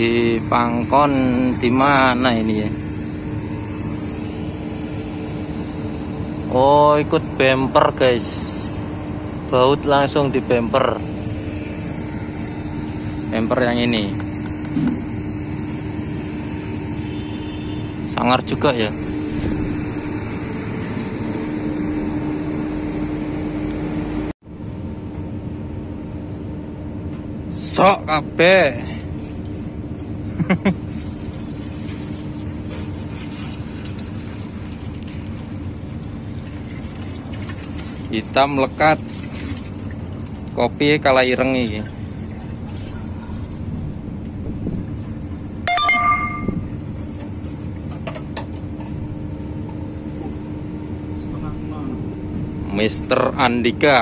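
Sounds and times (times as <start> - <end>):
engine humming: 0.0 - 25.3.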